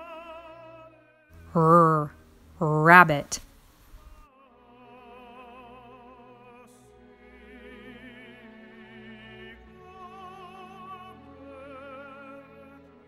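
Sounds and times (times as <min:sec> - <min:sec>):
quiet classical music: 0:04.9 - 0:13.0.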